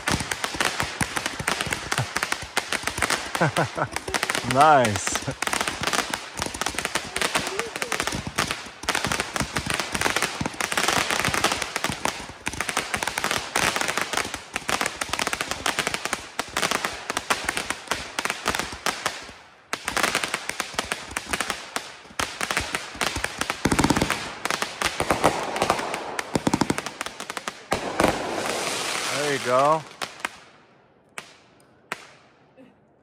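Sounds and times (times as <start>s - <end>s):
fireworks popping and crackling: 0.0s - 30.5s.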